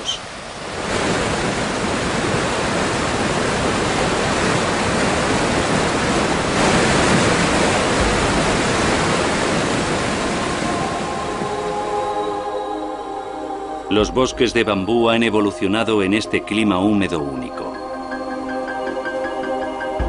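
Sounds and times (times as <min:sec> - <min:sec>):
fast-flowing water roaring: 0:00.0 - 0:14.5.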